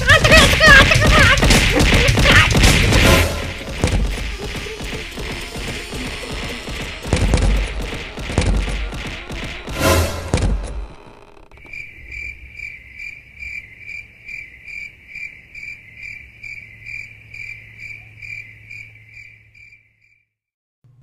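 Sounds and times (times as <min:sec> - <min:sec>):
loud crash: 0:00.9 - 0:10.7
cricket chirping: 0:11.5 - 0:20.3.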